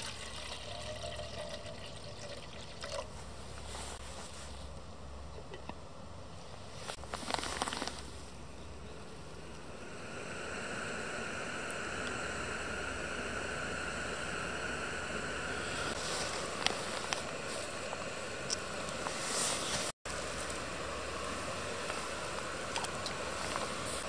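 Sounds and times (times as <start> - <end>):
gas stove burning hiss: 6.3 - 24.0.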